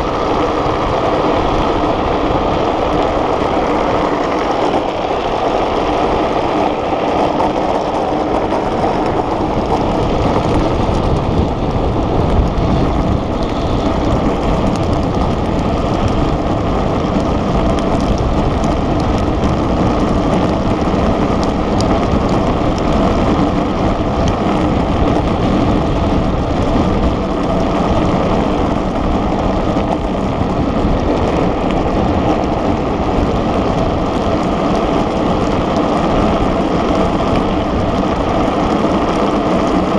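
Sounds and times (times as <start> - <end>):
hard wheels rolling on asphalt: 0.0 - 39.9
wind rushing over microphone: 0.0 - 39.9.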